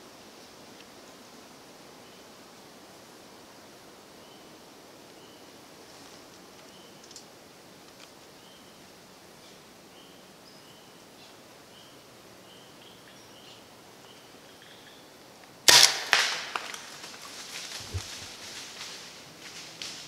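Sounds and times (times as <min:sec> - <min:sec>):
second crack: 0:15.7 - 0:17.2
bow release crack: 0:15.7 - 0:18.3.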